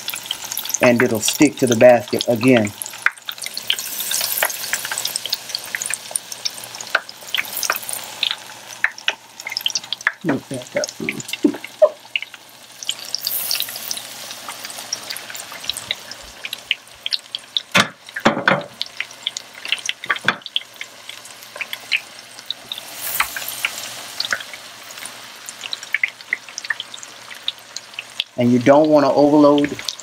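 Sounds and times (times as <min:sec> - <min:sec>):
shrimp deep-frying crackling: 0:00.0 - 0:30.0
sharp knocks: 0:17.8 - 0:18.8.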